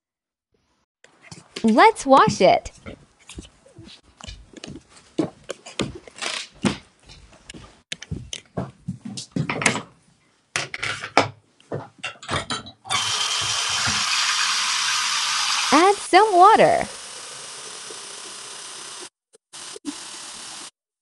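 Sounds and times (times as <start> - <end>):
faucet water running into sink: 13.0 - 19.1.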